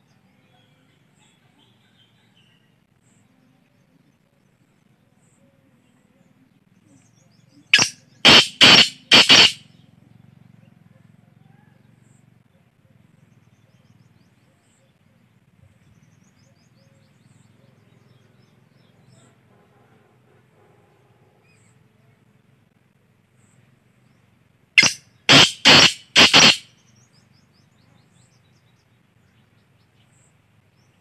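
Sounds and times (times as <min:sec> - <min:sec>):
francolin calling harsh notes: 0:07.7 - 0:09.6, 0:24.8 - 0:26.7.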